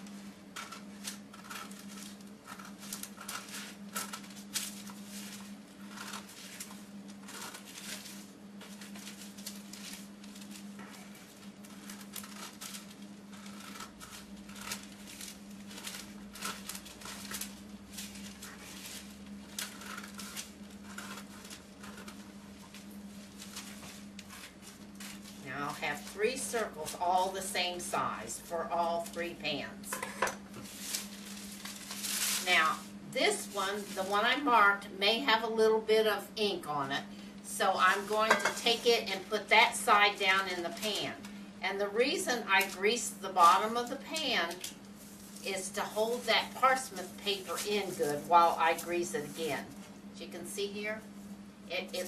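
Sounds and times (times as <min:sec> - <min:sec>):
steady low hum: 0:00.0 - 0:52.0
paper rustling: 0:00.6 - 0:27.2, 0:30.5 - 0:34.3, 0:42.6 - 0:49.9.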